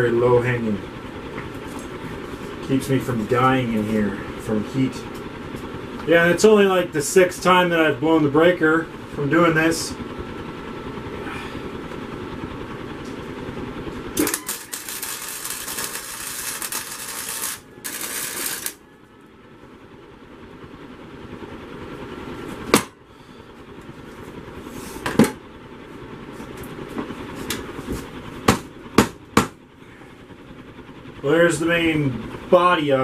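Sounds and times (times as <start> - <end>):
shop fan running: 0.0 - 33.0
welding arc crackling and hissing: 14.2 - 18.8
sharp knocks: 28.5 - 29.6.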